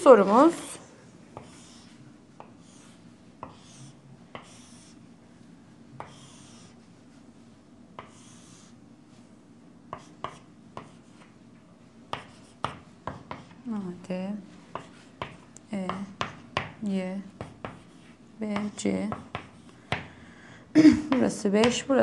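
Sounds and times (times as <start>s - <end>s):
chalk scraping on chalkboard: 1.4s - 5.0s, 6.0s - 7.2s
chalk tapping on chalkboard: 1.4s - 5.0s, 8.0s - 8.7s, 9.9s - 11.3s, 12.1s - 13.6s, 14.7s - 16.8s, 17.4s - 20.1s, 21.1s - 21.9s.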